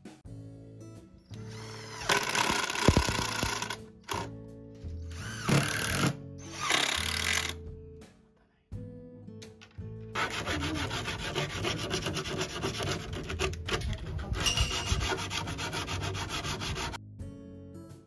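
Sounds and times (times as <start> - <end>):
sanding scratching strokes: 10.2 - 17.0.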